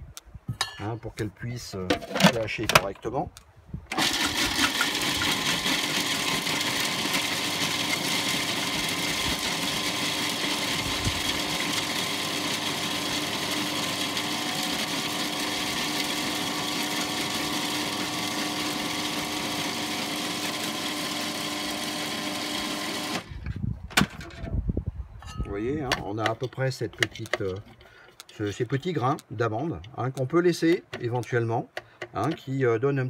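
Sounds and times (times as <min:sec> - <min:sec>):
food processor chopping nuts: 0:03.9 - 0:23.3.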